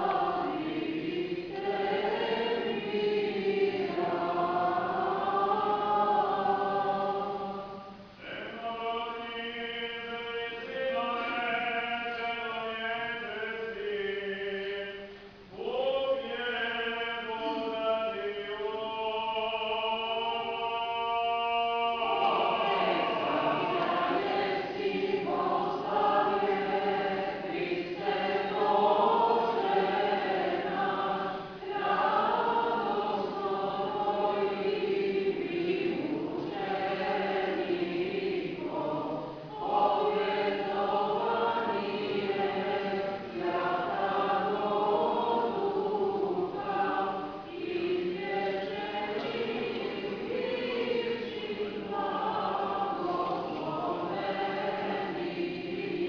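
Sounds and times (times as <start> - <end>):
choir singing chant unaccompanied: 0.0 - 56.0.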